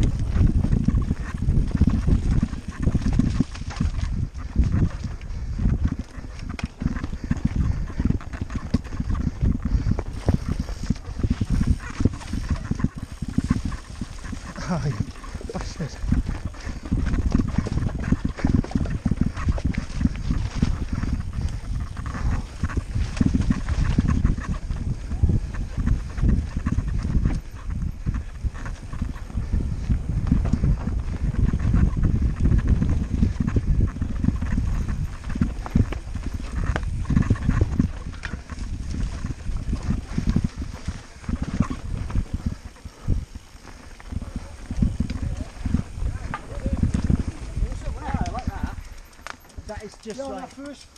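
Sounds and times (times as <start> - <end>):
mountain bike rattling over rocks: 0.0 - 50.9.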